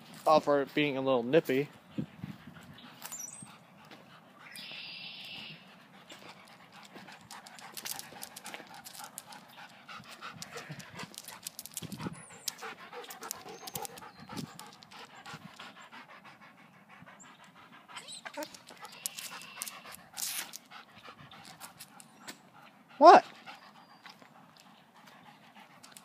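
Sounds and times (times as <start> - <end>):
large dog panting: 1.7 - 4.6, 5.3 - 26.0.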